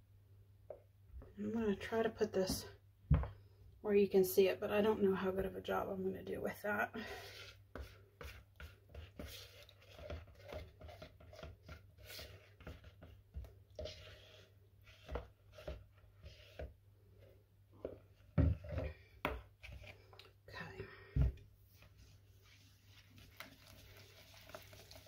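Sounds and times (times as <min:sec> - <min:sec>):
spatula scraping plastic bowl: 0:07.1 - 0:20.3.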